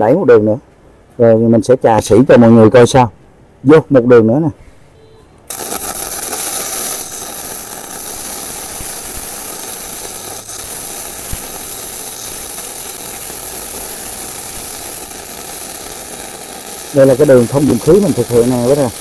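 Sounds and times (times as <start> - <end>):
welding arc hissing: 5.5 - 19.0.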